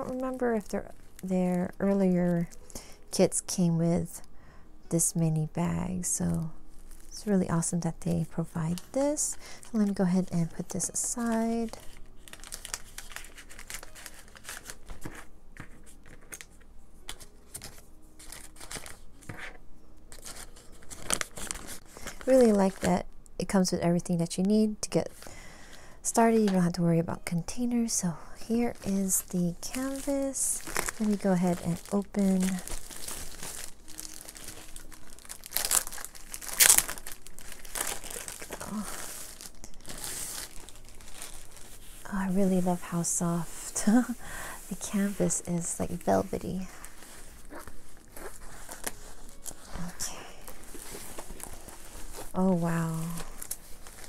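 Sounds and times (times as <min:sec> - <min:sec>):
plastic bags crinkling: 0:00.0 - 0:02.8, 0:08.8 - 0:19.5, 0:20.1 - 0:23.0, 0:28.6 - 0:54.0.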